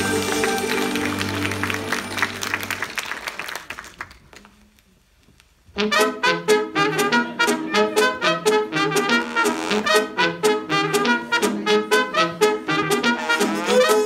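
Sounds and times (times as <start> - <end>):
music track: 0.0 - 3.0, 5.8 - 14.0
brass-led tune with sharp beat: 5.7 - 14.0.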